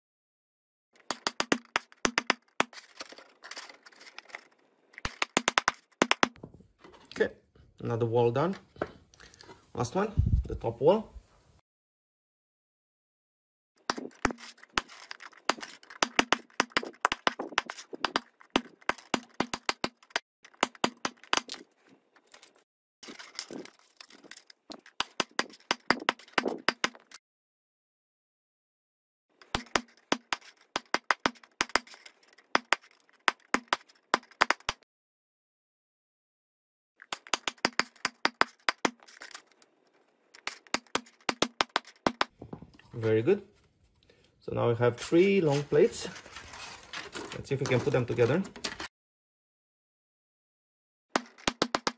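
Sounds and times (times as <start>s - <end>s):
hammer tapping plastic tiles: 5.0s - 6.4s, 13.9s - 21.6s, 37.0s - 39.6s, 40.4s - 42.3s.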